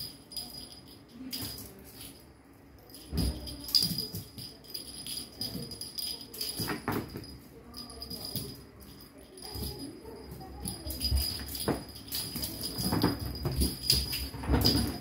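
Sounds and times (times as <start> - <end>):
light jingling: 0.0 - 15.0
kittens thumping on cushion: 9.5 - 15.0.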